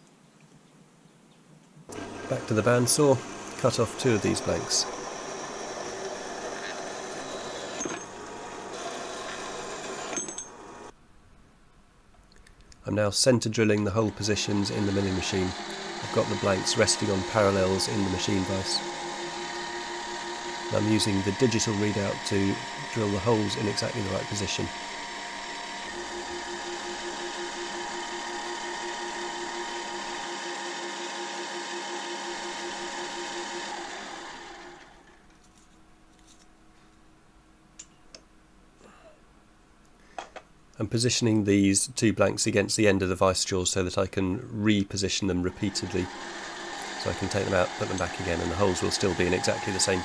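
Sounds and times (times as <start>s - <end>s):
bandsaw cutting metal: 1.9s - 10.9s, 13.8s - 35.1s, 45.5s - 50.0s
milling machine drilling aluminium: 1.9s - 10.9s, 13.8s - 35.0s, 45.5s - 50.0s.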